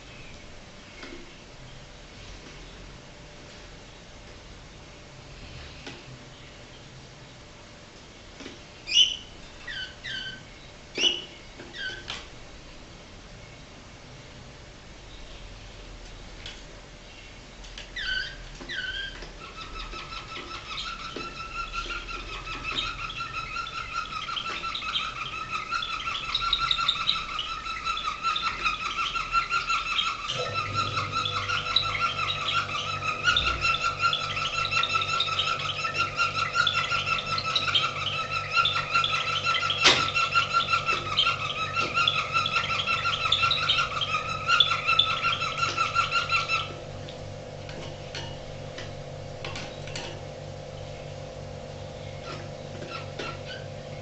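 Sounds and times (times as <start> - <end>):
low steady hum: 0.0 - 54.0
canary singing: 8.8 - 12.2, 17.1 - 54.0.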